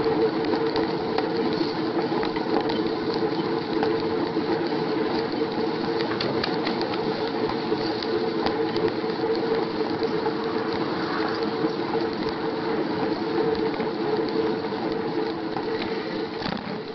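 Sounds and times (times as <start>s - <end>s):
bicycle mechanical hum: 0.0s - 16.9s.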